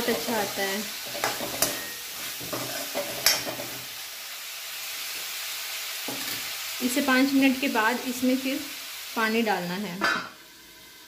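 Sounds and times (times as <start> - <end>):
metal spoon scraping a pan: 0.0 - 3.8
curry sizzling in a pan: 0.0 - 11.0.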